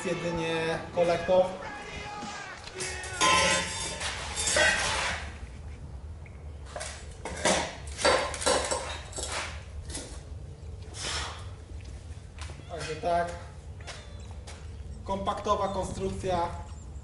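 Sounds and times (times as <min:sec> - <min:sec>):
metal pipes clanking and scraping: 0:02.8 - 0:05.3, 0:06.9 - 0:10.2.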